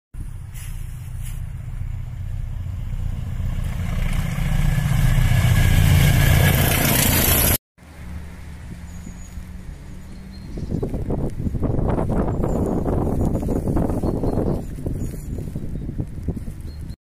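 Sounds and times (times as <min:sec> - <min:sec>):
train wheel and rail noise: 0:00.2 - 0:09.9
diesel locomotive engines droning: 0:00.2 - 0:12.1.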